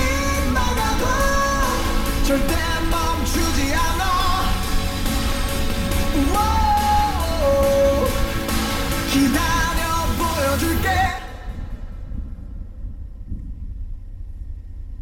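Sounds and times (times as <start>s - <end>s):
pop song with singer and band: 0.0s - 11.9s.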